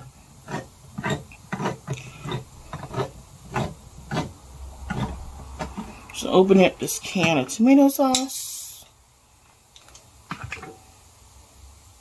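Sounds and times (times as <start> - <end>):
kitchen utensil scraping and clicking: 0.0 - 6.1.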